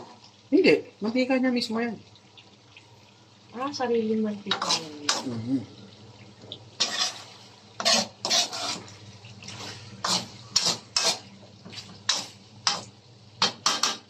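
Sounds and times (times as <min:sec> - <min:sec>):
metal ladle scraping a wok: 0:04.5 - 0:05.3, 0:06.8 - 0:11.3, 0:13.4 - 0:14.0.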